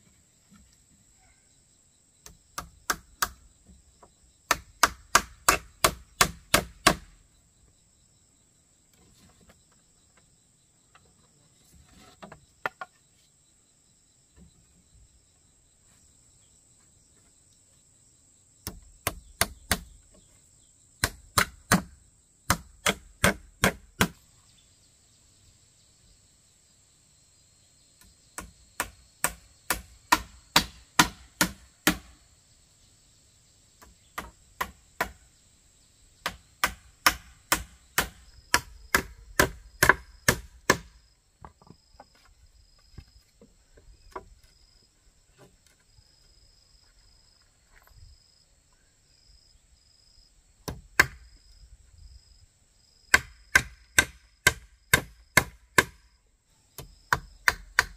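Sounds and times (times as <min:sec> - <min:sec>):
insects humming: 0:00.0 - 0:57.9
hammer striking nails into wood: 0:04.5 - 0:07.1, 0:18.6 - 0:19.9, 0:21.0 - 0:21.9, 0:22.5 - 0:24.2, 0:28.4 - 0:32.1, 0:36.2 - 0:40.9, 0:53.1 - 0:56.0, 0:56.8 - 0:57.9.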